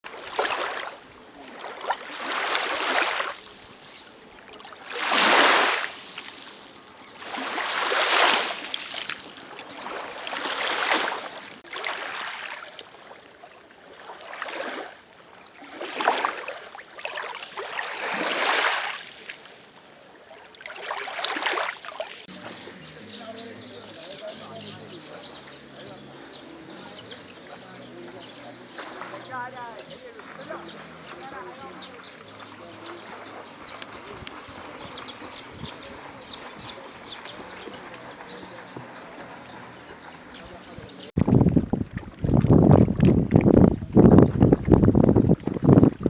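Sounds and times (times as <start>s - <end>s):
waves lapping on shore: 0.0s - 43.5s.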